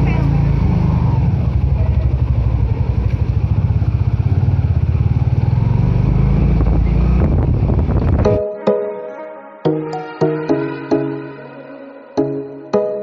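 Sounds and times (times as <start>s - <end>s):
motorcycle engine running: 0.0s - 8.3s
road noise: 0.0s - 8.4s
music: 8.1s - 13.0s.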